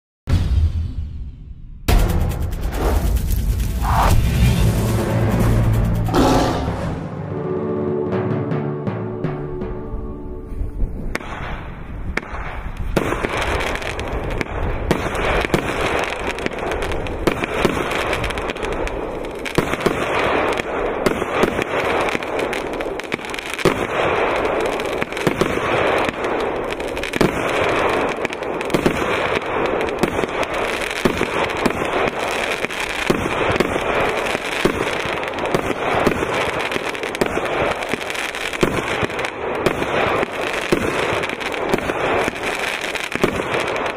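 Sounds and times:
firework bang: 0.3 - 7.2
fireworks popping and crackling: 1.9 - 6.1, 11.0 - 43.9.

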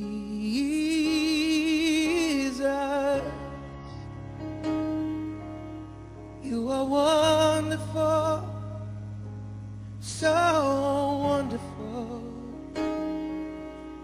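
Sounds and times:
person singing: 0.0 - 4.1, 6.4 - 9.0, 10.0 - 13.3
sustained chords: 0.0 - 14.0.

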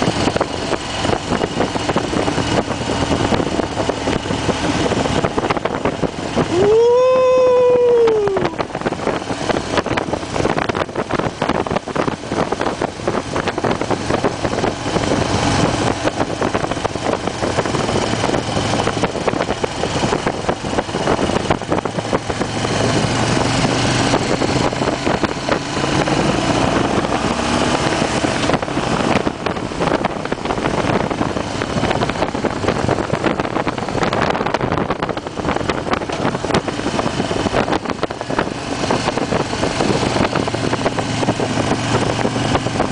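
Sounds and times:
motorcycle engine running: 0.0 - 42.9
wind buffeting microphone: 0.0 - 42.9.

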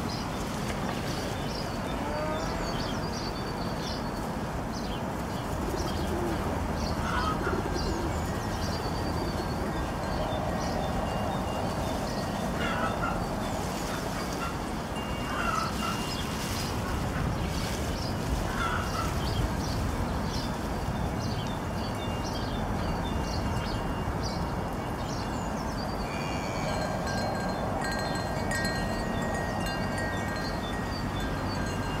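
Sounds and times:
outdoor wind noise: 0.0 - 32.0
wind chimes ringing: 8.1 - 16.2, 21.4 - 32.0.

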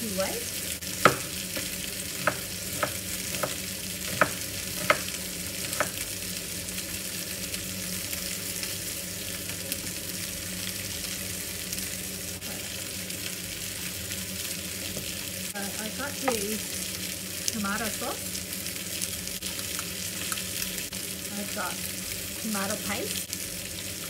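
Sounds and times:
knife knocking on wooden board: 1.0 - 6.0.

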